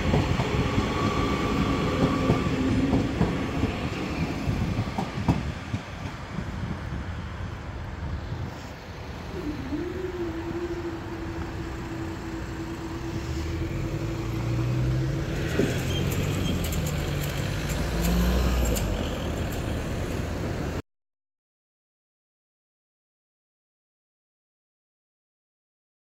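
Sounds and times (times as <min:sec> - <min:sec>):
vehicle engines accelerating: 0:08.0 - 0:20.8.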